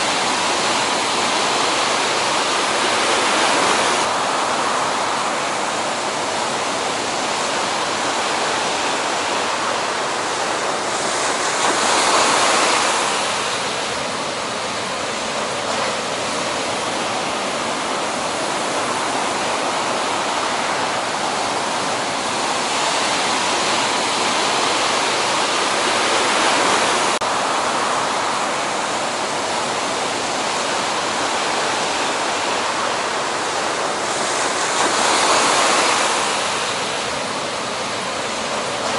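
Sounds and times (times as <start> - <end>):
ocean waves breaking: 0.0 - 38.9.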